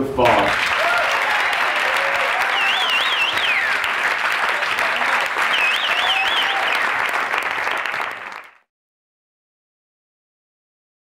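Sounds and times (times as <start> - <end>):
audience applauding and cheering: 0.2 - 8.7
warbling whistle: 2.4 - 3.8, 5.4 - 7.0.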